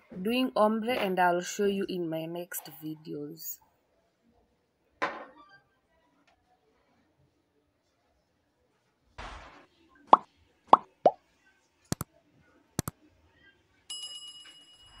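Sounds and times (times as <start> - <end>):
ringing bell chime: 13.9 - 15.0.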